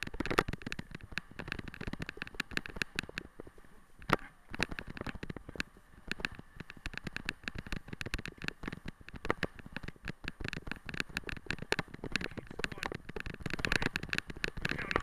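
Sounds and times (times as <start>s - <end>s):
wheeled rig rattling over dirt: 0.0s - 15.0s.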